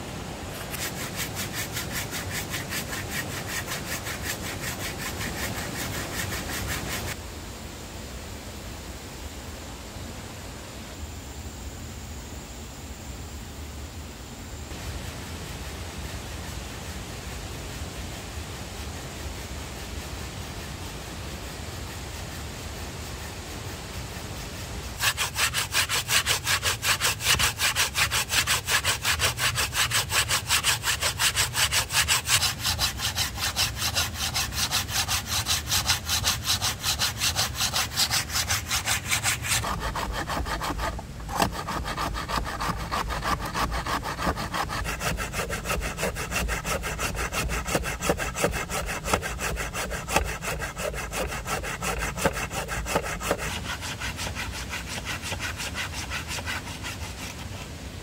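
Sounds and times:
hand saw cutting wood: 0:00.0 - 0:07.2, 0:24.4 - 0:57.7
steady hiss: 0:00.0 - 0:58.0.

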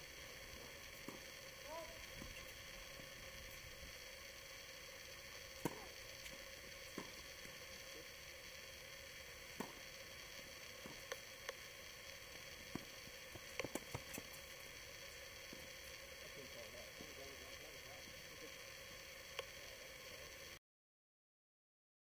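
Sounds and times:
faint hum: 0:00.0 - 0:20.6
tennis balls struck by rackets: 0:01.0 - 0:01.2, 0:05.6 - 0:06.0, 0:06.9 - 0:07.3, 0:09.5 - 0:09.8, 0:13.6 - 0:14.2
balls bouncing on hard court: 0:05.6 - 0:05.9, 0:12.7 - 0:14.2.

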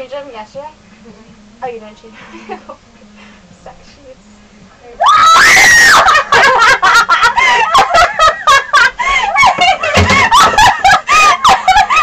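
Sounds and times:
women laughing loudly: 0:02.2 - 0:02.8, 0:05.1 - 0:12.0.

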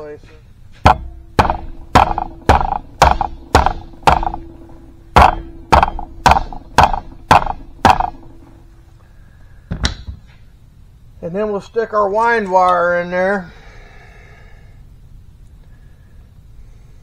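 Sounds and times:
mallet knocking on steel: 0:00.8 - 0:08.6.

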